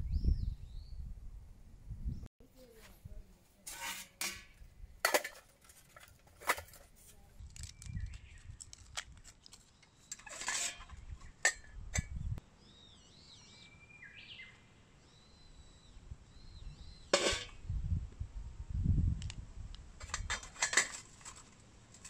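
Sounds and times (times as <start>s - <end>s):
birds calling faintly: 7.2s - 17.6s
metal clinks and knocks: 20.0s - 22.0s.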